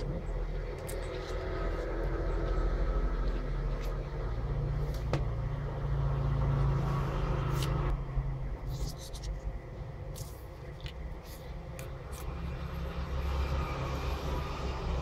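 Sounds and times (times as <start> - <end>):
low background rumble: 0.0 - 15.0.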